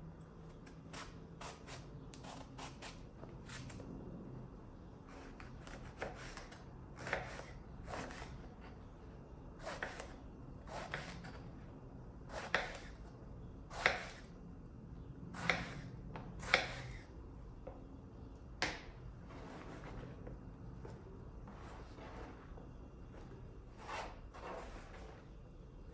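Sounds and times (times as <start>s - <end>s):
knife chopping on wooden board: 15.4s - 17.0s.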